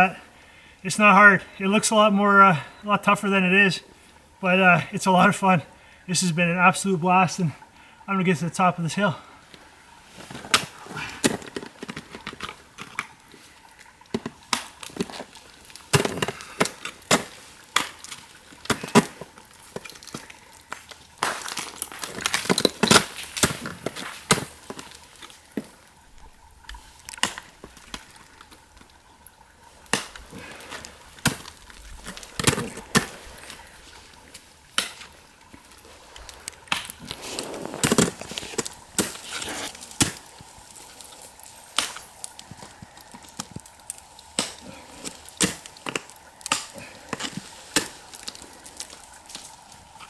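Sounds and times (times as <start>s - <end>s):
ice chipping: 10.2s - 25.9s, 26.6s - 28.9s, 29.7s - 50.0s
ice axe striking ice: 14.1s - 25.0s, 29.9s - 33.2s, 34.8s - 35.1s, 36.7s - 40.4s, 44.3s - 49.4s.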